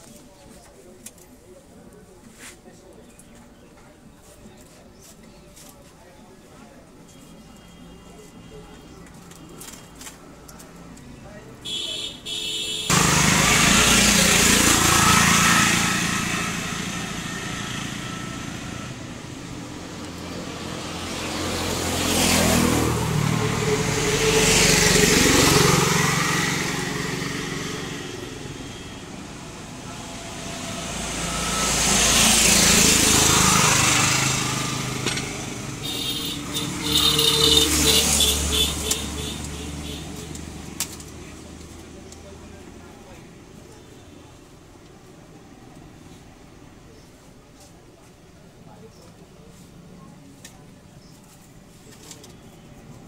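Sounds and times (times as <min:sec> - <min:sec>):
motor vehicles passing by: 0:08.2 - 0:43.8.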